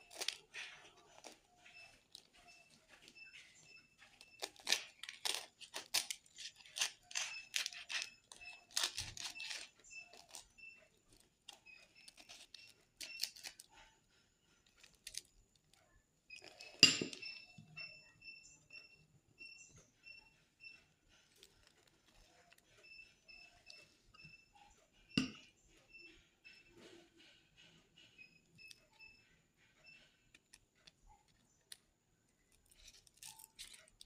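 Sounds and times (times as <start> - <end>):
knife cutting crispy crust: 0.0 - 1.8, 4.2 - 10.5, 11.5 - 13.7, 32.5 - 34.0.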